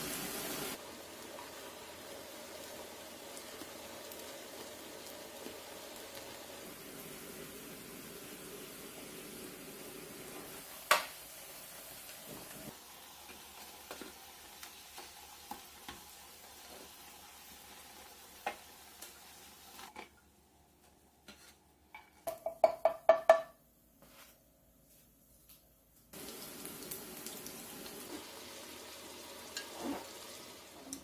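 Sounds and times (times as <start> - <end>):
slices sizzling in oil: 0.0 - 20.0, 26.2 - 31.0.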